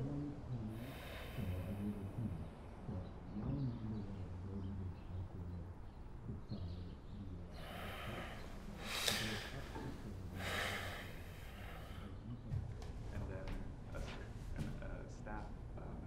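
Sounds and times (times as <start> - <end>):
low steady hum: 0.0 - 16.0
man breathing heavily: 0.6 - 2.5, 7.6 - 12.2.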